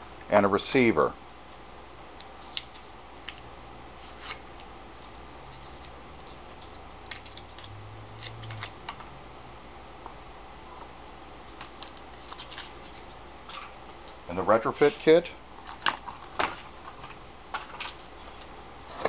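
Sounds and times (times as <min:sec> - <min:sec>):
foam packing rustling: 0:11.5 - 0:13.2.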